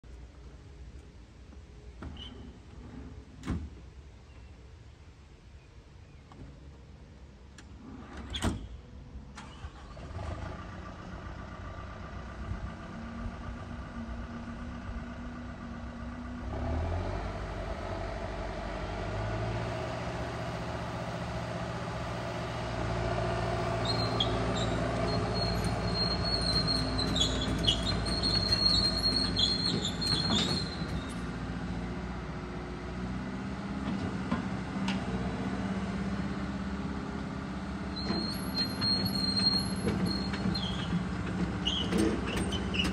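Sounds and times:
excavator diesel engine running: 9.4s - 42.9s
hydraulics moving boom: 18.8s - 31.3s
high-pitched squeals: 23.2s - 31.2s, 38.0s - 41.0s.

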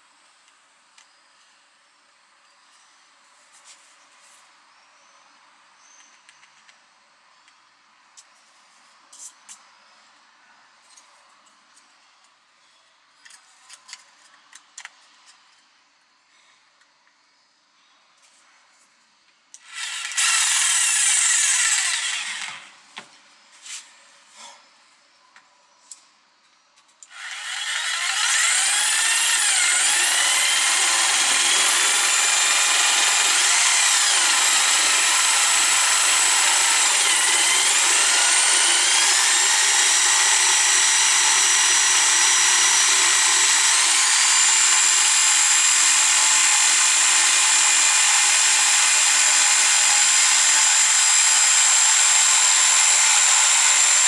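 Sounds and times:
jigsaw sawing board: 19.7s - 22.6s, 27.1s - 54.0s.

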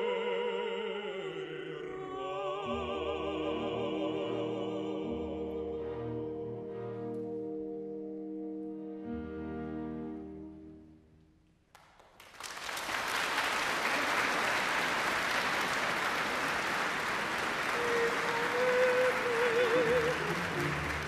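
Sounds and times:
audience applause: 11.8s - 21.0s.

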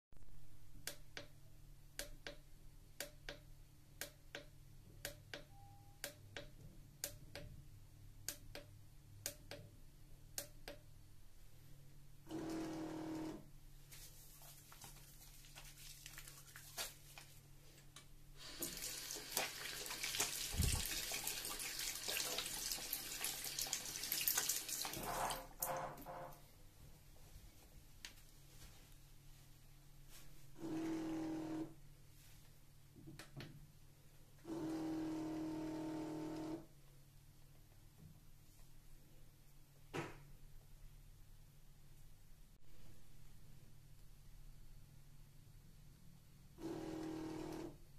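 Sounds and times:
faint regular clicks: 0.7s - 7.6s, 8.2s - 10.9s
soap dispenser pump motor whirring: 12.3s - 13.4s, 30.6s - 31.7s, 34.5s - 36.6s, 46.6s - 47.8s
hands rubbing lather: 13.9s - 17.4s.

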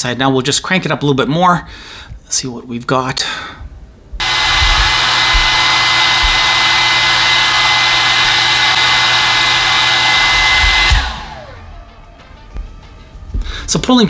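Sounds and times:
hair dryer running: 4.2s - 12.5s.

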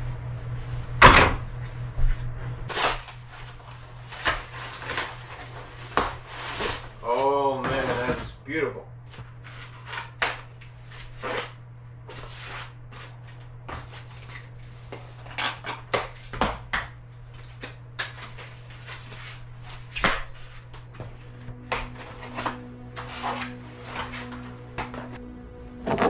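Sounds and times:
steady low hum: 0.0s - 26.0s
rustling foam and plastic wrap: 2.7s - 8.3s, 18.2s - 25.2s.

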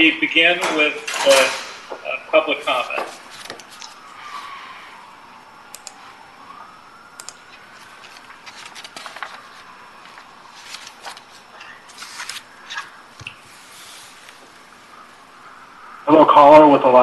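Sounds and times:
computer keys clicking: 5.7s - 6.0s, 7.2s - 7.6s.

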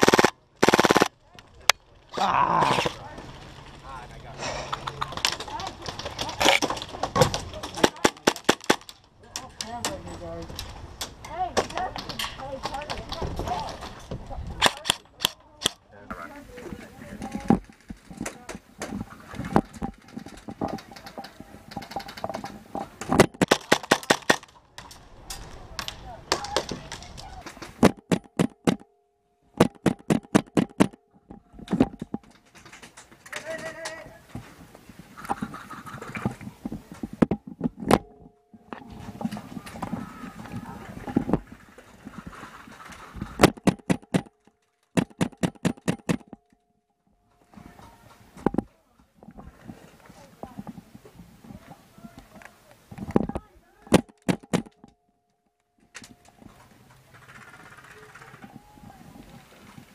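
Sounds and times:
airsoft gunshots: 0.0s - 1.1s.

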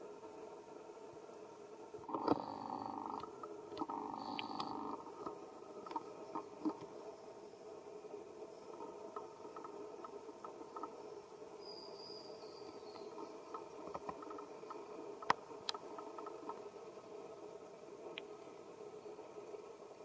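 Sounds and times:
outdoor background drone: 0.0s - 20.0s
faint clicks: 3.1s - 6.9s, 8.7s - 11.0s, 12.9s - 16.7s, 18.1s - 18.4s.

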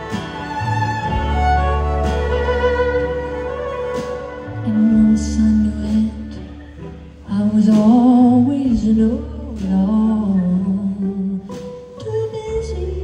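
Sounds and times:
acoustic guitar: 0.0s - 13.0s
violin: 0.0s - 13.0s
woman singing: 4.4s - 13.0s.

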